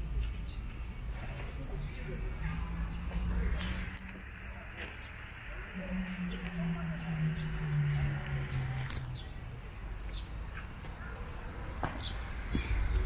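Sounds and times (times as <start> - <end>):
insects chirring: 0.0 - 13.0
low hum sliding down: 2.1 - 9.8.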